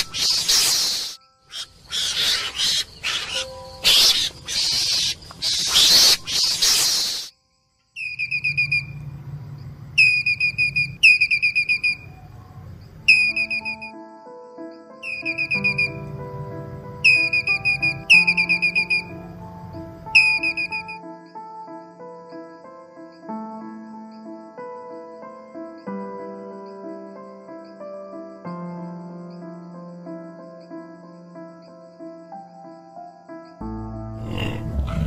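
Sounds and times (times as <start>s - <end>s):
high whistle-like trills: 0.0s - 7.4s, 8.0s - 9.3s, 9.9s - 13.9s, 15.0s - 19.3s, 20.0s - 21.0s
background music sustained notes: 1.1s - 5.3s, 8.5s - 35.0s.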